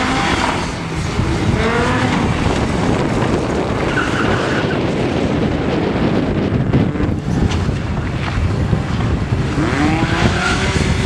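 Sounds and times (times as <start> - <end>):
rally car engine running hard: 0.0 - 11.0
tyre squeal: 3.8 - 4.8.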